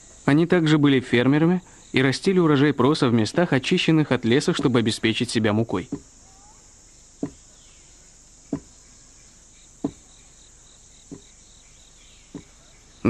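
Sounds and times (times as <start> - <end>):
insect chorus: 0.0 - 13.0
dull thuds: 5.8 - 6.2, 7.2 - 7.6, 8.4 - 8.9, 9.7 - 10.3, 11.0 - 11.5, 12.2 - 12.7.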